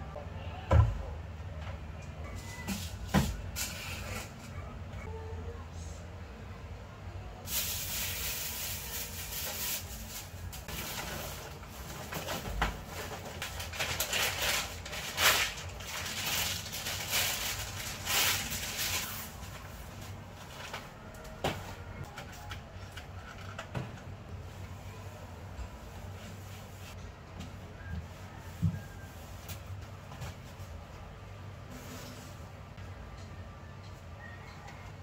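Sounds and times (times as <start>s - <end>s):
plastic bags rustling: 7.5s - 21.0s.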